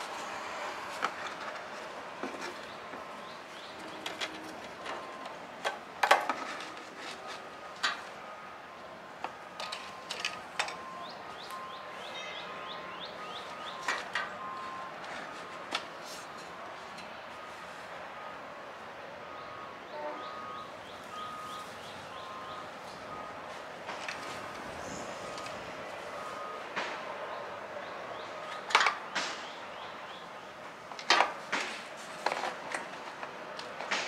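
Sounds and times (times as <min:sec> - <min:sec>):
birds chirping: 0:02.3 - 0:05.3, 0:09.6 - 0:15.0, 0:19.2 - 0:23.4, 0:26.1 - 0:30.7.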